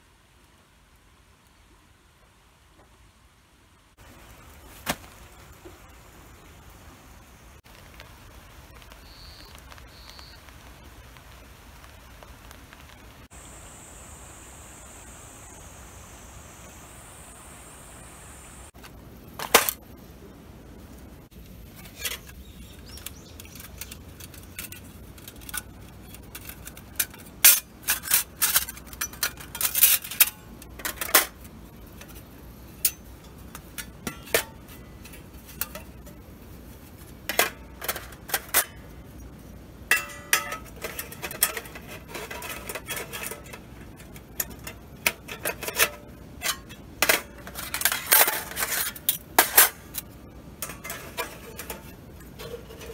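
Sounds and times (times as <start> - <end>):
steel panels clinking: 21.8 - 36.2, 39.9 - 52.9.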